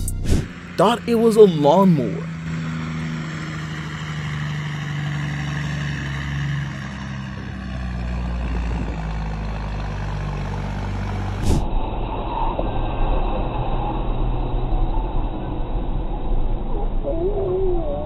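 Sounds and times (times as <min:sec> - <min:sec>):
truck engine humming: 0:00.0 - 0:11.4
vehicle sound: 0:00.0 - 0:17.6.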